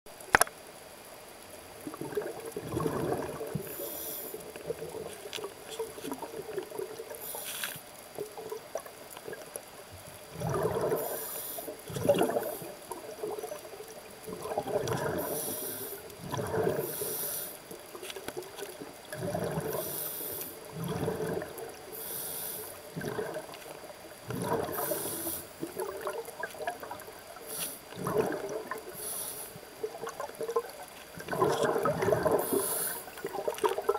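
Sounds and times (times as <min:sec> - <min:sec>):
sharp click: 0:00.3 - 0:00.5
bubbly gurgling exhalations: 0:01.8 - 0:07.6, 0:10.2 - 0:22.2, 0:22.8 - 0:33.9
hissing regulator inhalations: 0:03.6 - 0:04.4, 0:07.2 - 0:07.8, 0:15.2 - 0:16.1, 0:16.7 - 0:17.6, 0:21.9 - 0:22.8, 0:24.7 - 0:25.6, 0:27.4 - 0:27.9, 0:28.9 - 0:29.6, 0:32.3 - 0:33.2.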